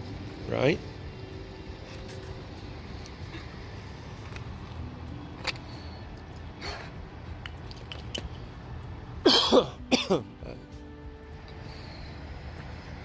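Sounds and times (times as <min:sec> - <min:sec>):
girl coughing: 0:09.2 - 0:10.2.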